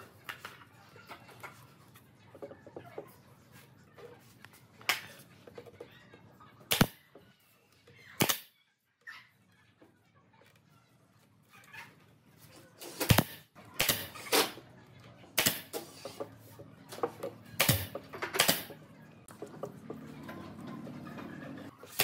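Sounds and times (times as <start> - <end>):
pneumatic nail gun firing: 6.7 - 7.0, 8.2 - 8.5, 13.0 - 14.6, 15.4 - 15.9, 17.6 - 18.7.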